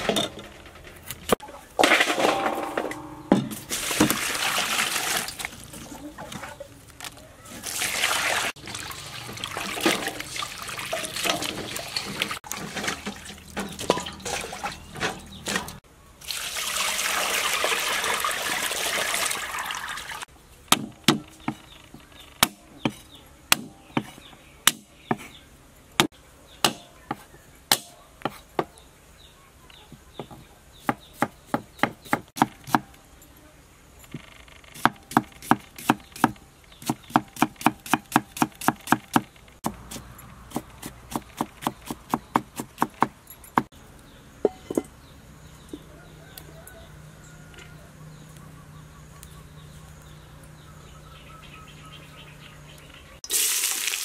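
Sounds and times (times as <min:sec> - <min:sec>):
water pouring into a colander: 0:03.7 - 0:05.6, 0:07.6 - 0:14.8, 0:16.2 - 0:20.2, 0:53.3 - 0:54.0
water sloshing in a steel bowl: 0:07.6 - 0:20.2.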